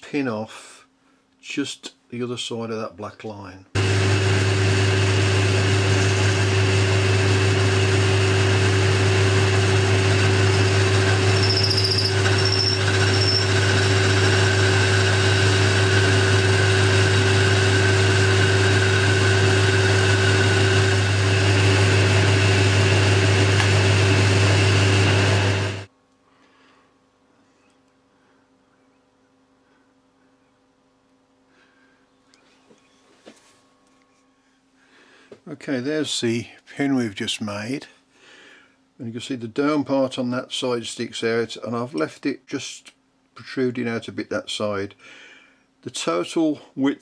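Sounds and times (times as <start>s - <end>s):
lathe motor humming: 3.8s - 25.9s
high squeal from metal cutting: 11.0s - 14.0s.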